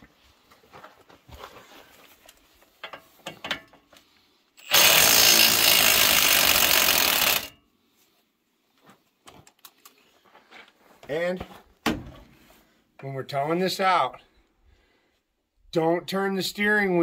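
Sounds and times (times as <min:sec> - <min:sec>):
impact wrench hammering: 0:04.6 - 0:07.6.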